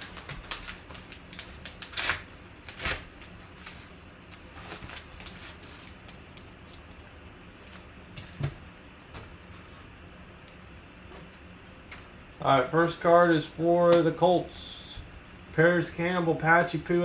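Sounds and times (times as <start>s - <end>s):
paper mailer tearing: 0.0s - 3.8s
paper crinkling: 0.0s - 7.9s.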